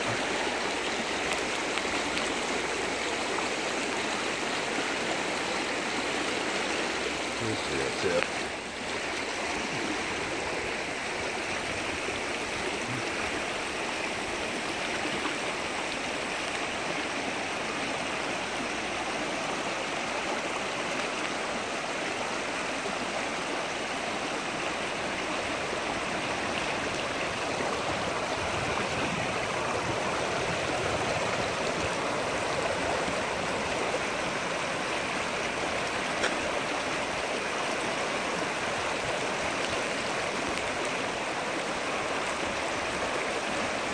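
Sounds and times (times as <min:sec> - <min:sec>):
river rushing over stones: 0:00.0 - 0:43.9.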